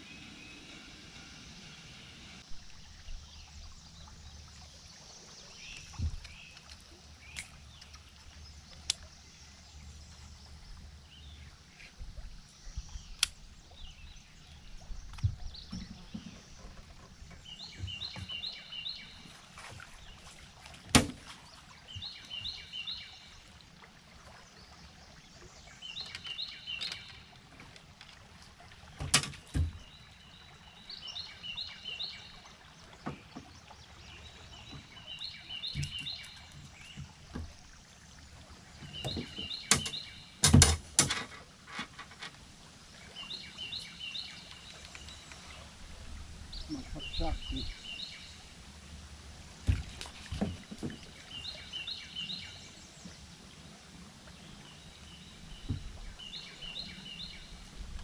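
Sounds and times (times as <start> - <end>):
songbird singing: 0.0 - 27.8, 28.8 - 58.0
knocks and clunks in a boat: 5.6 - 7.0, 13.8 - 23.1, 26.0 - 31.3, 32.8 - 42.5, 46.6 - 48.0, 49.6 - 52.0, 54.6 - 58.0.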